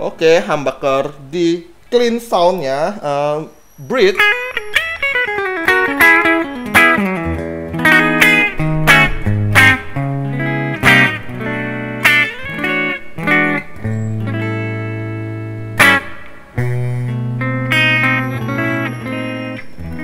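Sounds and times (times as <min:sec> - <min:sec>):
clean electric guitar playing: 0:04.0 - 0:20.0.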